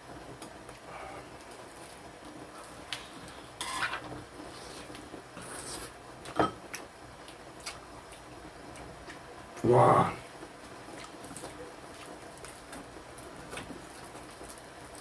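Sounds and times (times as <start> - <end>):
steady low hiss: 0.0 - 15.0.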